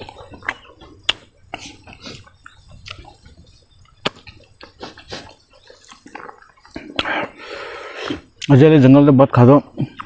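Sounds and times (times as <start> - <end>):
wet chewing and lip-smacking: 0.0 - 7.4.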